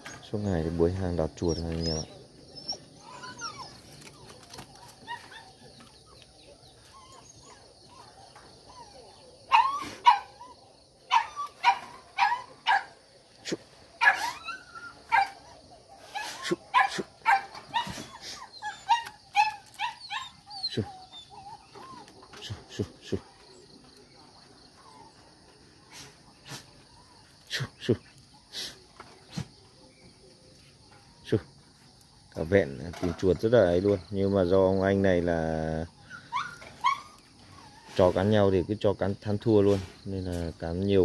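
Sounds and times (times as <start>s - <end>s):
dogs barking in sharp yips: 1.7s - 13.0s, 14.0s - 22.8s, 36.1s - 38.0s.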